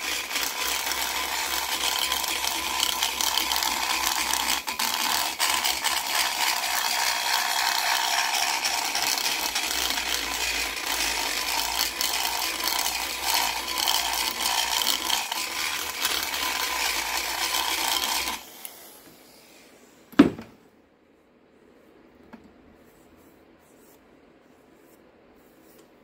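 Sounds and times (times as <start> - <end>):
die grinder rasping metal: 0.0 - 19.0.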